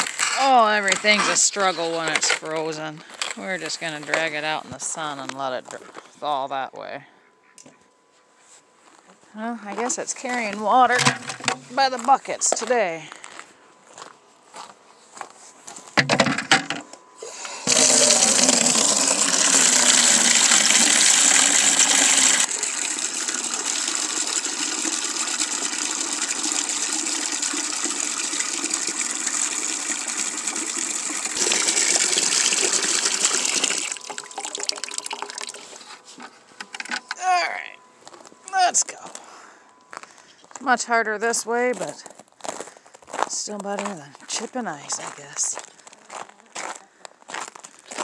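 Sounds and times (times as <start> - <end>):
water running into plastic bucket: 0.0 - 2.8, 10.9 - 11.8, 17.3 - 35.9.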